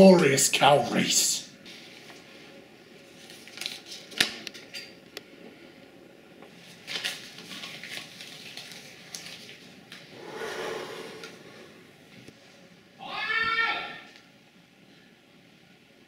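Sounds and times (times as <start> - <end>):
paper packet crinkling and tearing: 6.7 - 9.7.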